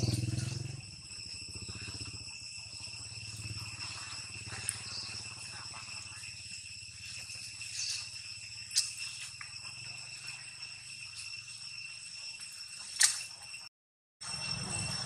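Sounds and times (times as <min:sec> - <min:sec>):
high insect drone: 0:00.0 - 0:15.0
sharp click: 0:13.0 - 0:13.3.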